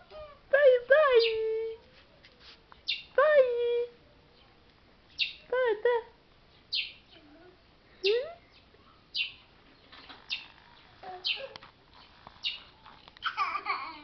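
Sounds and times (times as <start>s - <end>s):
small child babbling: 11.0s - 11.7s, 13.2s - 14.0s.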